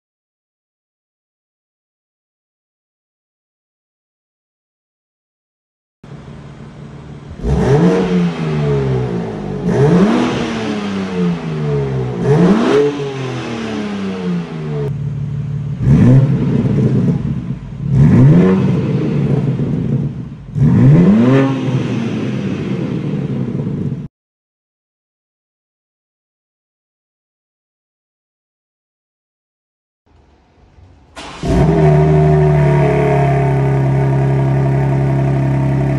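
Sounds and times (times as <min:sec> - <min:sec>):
car engine idling: 0:06.0 - 0:21.0, 0:30.1 - 0:35.9
car engine revving: 0:06.0 - 0:24.1, 0:30.2 - 0:35.9.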